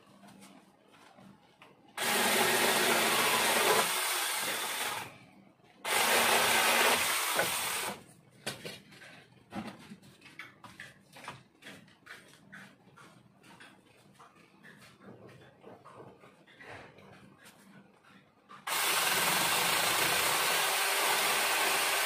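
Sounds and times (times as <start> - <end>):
chainsaw cutting wood: 2.0 - 5.1, 5.8 - 8.0, 18.6 - 22.0.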